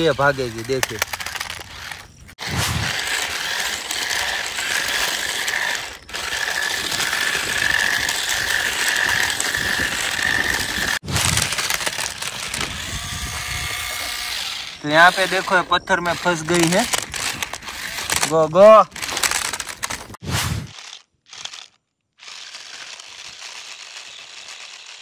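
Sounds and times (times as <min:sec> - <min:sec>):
toy car motor whirring: 0:00.0 - 0:25.0
high motor whine: 0:00.8 - 0:18.3.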